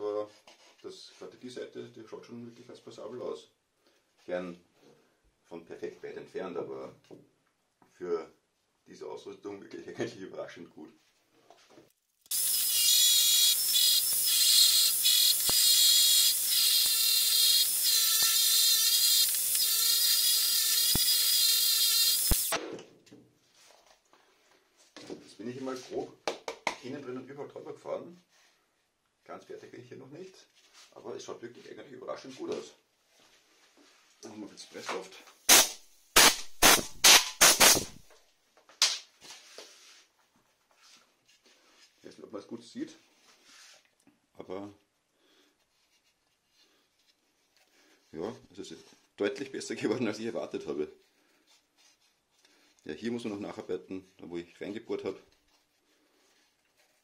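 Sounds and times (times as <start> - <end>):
electric drill sanding wood: 12.3 - 22.6
compressed air blasts: 35.5 - 38.0.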